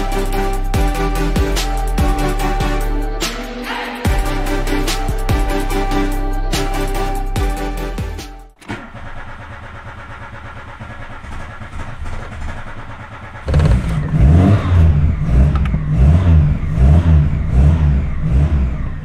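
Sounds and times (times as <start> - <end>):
car engine running pulsing: 0.0 - 19.0.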